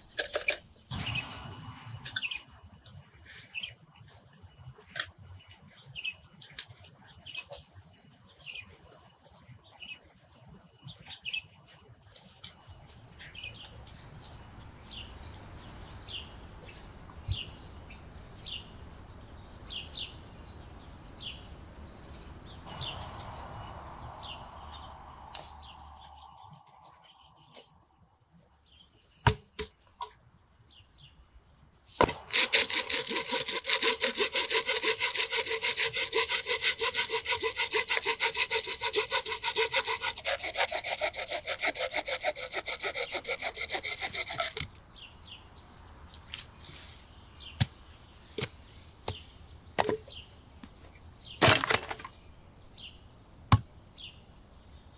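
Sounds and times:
hand saw cutting wood: 32.0 - 44.8.

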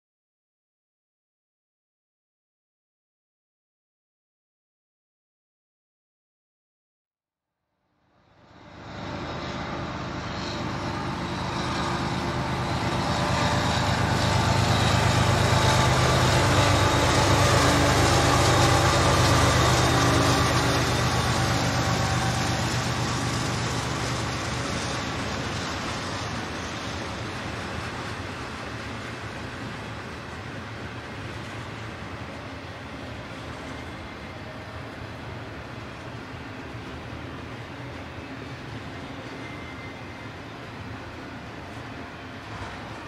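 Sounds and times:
diesel locomotive engines: 8.0 - 43.0.

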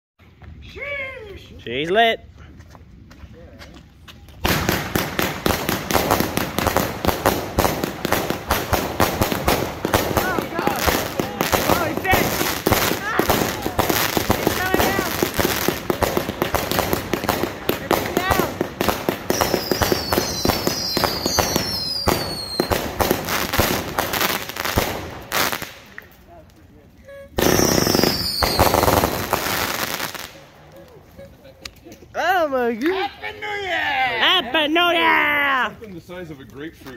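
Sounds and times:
continuous firework crackling: 4.3 - 32.1
firework bangs: 4.4 - 26.0, 27.4 - 30.6
falling firework whistles: 19.3 - 22.8, 27.4 - 30.2.

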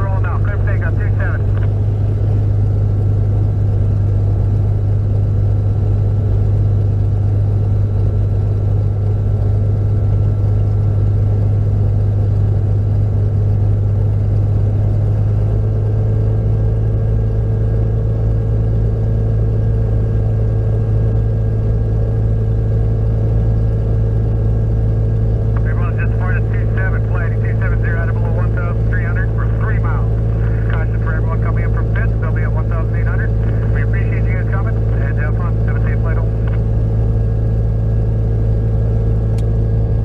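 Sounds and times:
aircraft engine idling: 0.0 - 40.0.

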